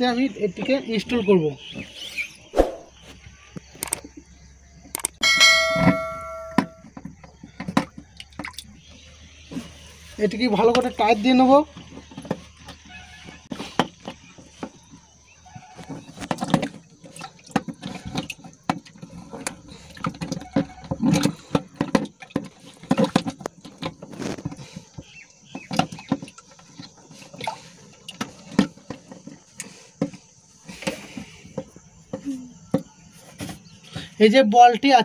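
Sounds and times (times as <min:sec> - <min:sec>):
water splashing in tank: 0:07.6 - 0:29.2.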